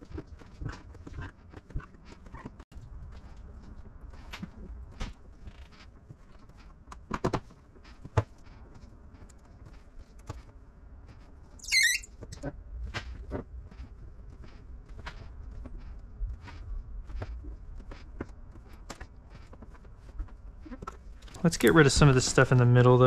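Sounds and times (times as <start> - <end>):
brief high squeak: 11.6 - 12.4.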